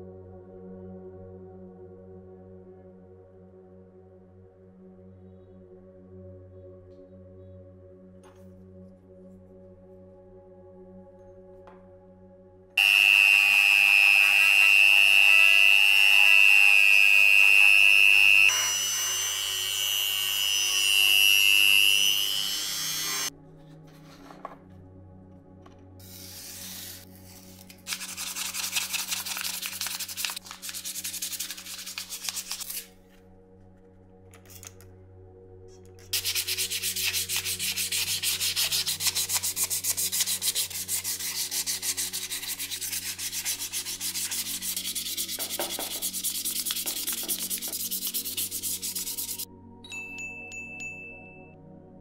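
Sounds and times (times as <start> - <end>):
sandpaper rubbing metal: 26.0 - 32.9, 36.1 - 49.5.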